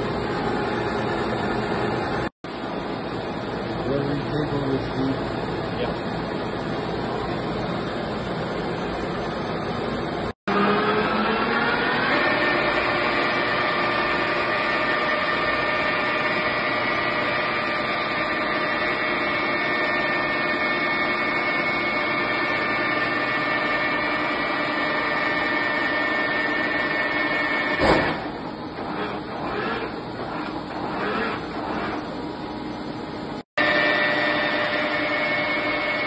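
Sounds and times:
sharp machine clunk: 27.7s - 28.4s.

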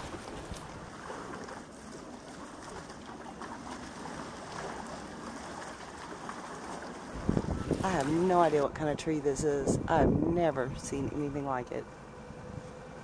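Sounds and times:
water rushing: 0.0s - 11.8s
wind on microphone: 7.1s - 11.4s.

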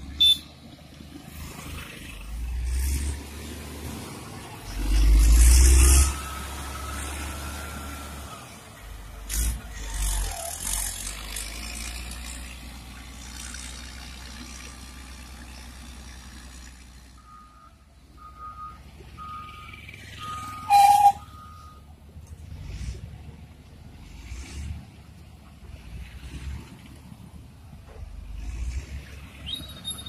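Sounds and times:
diesel engine rumbling: 0.0s - 30.0s
backup alarm beeps: 17.2s - 21.8s.

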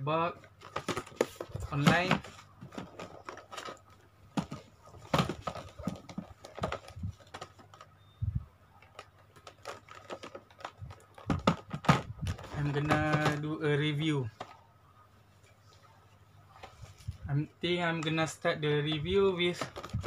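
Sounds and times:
taps and clicks on toy packaging: 0.6s - 7.9s, 8.8s - 13.5s, 18.9s - 20.0s.

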